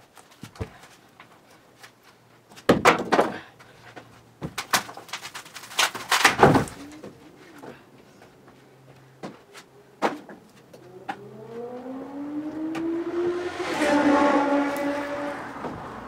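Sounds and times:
wood creaking and cracking: 0:00.0 - 0:07.8.

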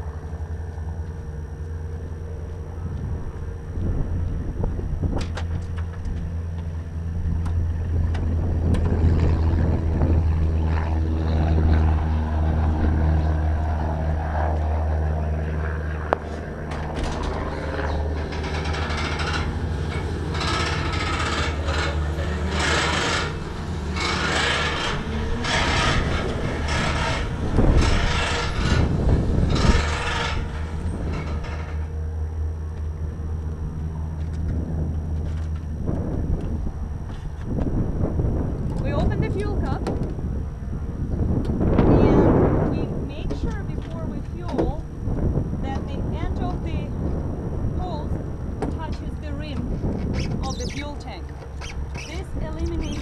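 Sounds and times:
engine drone: 0:00.0 - 0:53.0
steady low hum: 0:00.0 - 0:53.0
fuel hose scraping over asphalt: 0:16.2 - 0:31.9.

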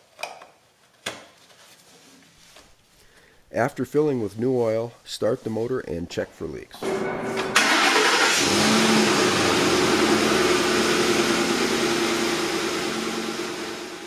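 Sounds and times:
engine starting and idling: 0:06.8 - 0:14.0.

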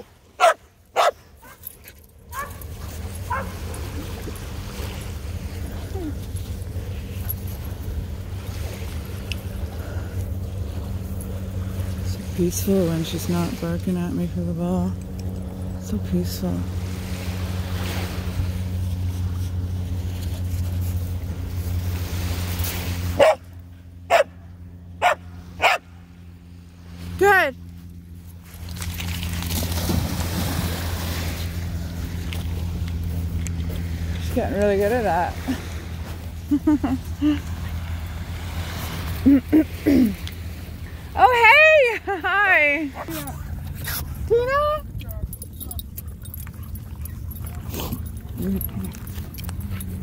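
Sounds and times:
low engine drone: 0:00.0 - 0:50.0
dog barking: 0:00.4 - 0:01.6, 0:02.3 - 0:02.6, 0:03.3 - 0:03.6, 0:23.2 - 0:23.4, 0:24.1 - 0:24.3, 0:25.0 - 0:25.8.

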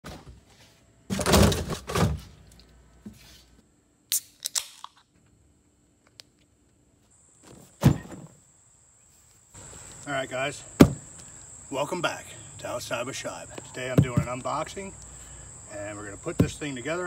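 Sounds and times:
can opening pop and fizz: 0:04.1 - 0:05.0.

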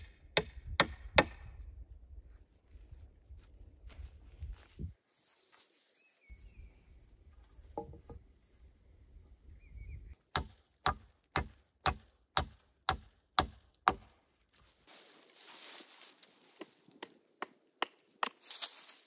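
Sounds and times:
wood being chopped: 0:00.0 - 0:01.5, 0:10.3 - 0:14.2, 0:16.6 - 0:18.7.

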